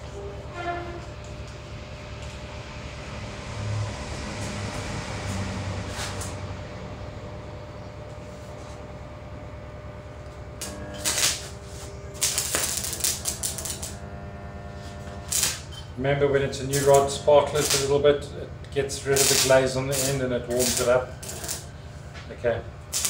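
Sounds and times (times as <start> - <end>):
steady machine hum: 0.0 - 23.0
welding rod scratching: 10.6 - 18.1, 18.8 - 21.9
welding arc crackling and hissing: 10.6 - 22.1, 22.8 - 23.0.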